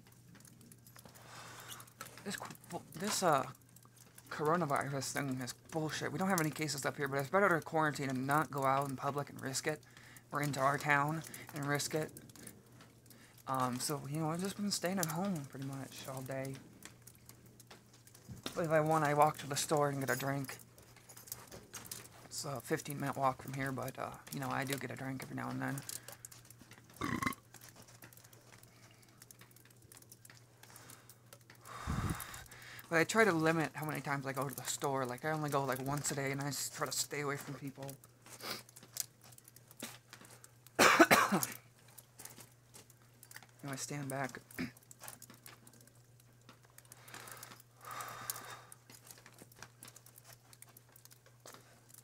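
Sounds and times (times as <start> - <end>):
faint ticks: 0.0 - 52.0
low steady hum: 0.0 - 52.0
person exhaling smoke: 31.7 - 32.8.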